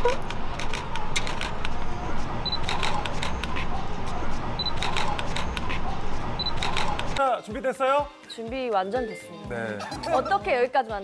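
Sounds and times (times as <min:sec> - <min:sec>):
camera shutter clicking: 0:00.2 - 0:01.7, 0:02.6 - 0:03.6, 0:04.7 - 0:05.7, 0:06.5 - 0:07.2.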